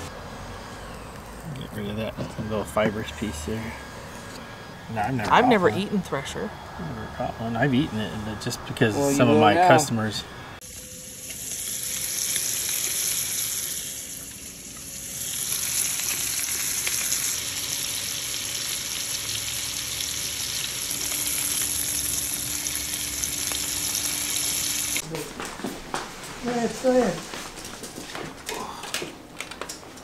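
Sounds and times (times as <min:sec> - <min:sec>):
fish sizzling in hot oil: 0:10.6 - 0:25.0.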